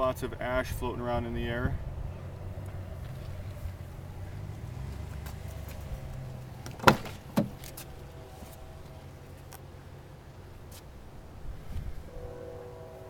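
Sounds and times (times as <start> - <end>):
steady low rumble: 0.0 - 12.3
car door latch click: 6.6 - 7.8
car door clunk: 6.6 - 7.9.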